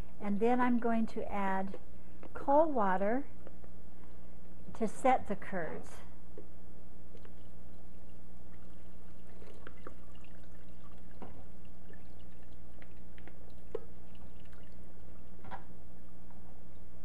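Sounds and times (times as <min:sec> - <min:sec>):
steady low hum: 0:00.0 - 0:17.0
water dripping: 0:07.1 - 0:15.4
water pouring: 0:07.2 - 0:15.4.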